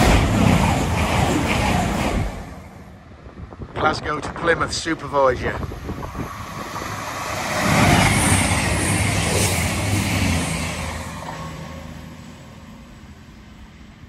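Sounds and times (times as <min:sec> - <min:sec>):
diesel train passing at speed: 0:00.0 - 0:14.0.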